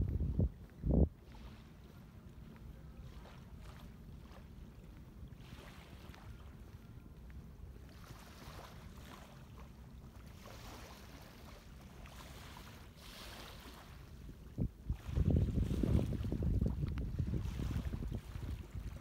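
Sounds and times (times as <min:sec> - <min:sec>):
wind on microphone: 0:00.0 - 0:01.6, 0:13.5 - 0:19.0
waves lapping against seawall: 0:00.0 - 0:19.0.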